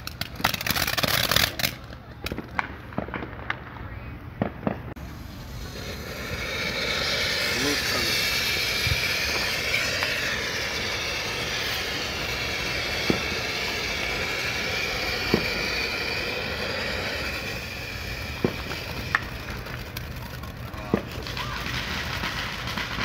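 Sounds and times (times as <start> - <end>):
firework crackling: 0.0 - 23.0
firework fountain hissing: 0.0 - 23.0
sharp pops: 5.7 - 20.0.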